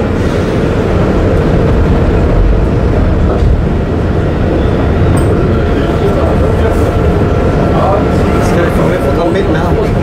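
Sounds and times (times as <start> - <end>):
tram motors and wheels rumbling: 0.0 - 10.0.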